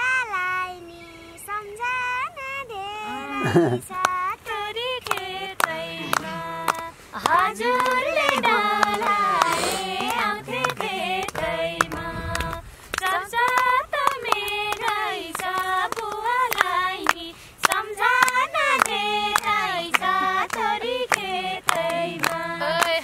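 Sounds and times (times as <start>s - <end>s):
girl singing: 0.0s - 23.0s
women singing folk song: 0.0s - 23.0s
hands clapping steady beat: 5.0s - 23.0s.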